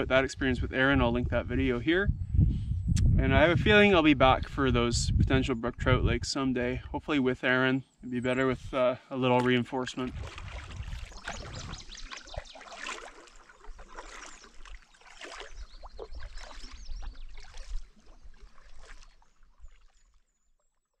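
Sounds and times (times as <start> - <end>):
ripples lapping and gurgling: 9.3 - 20.7.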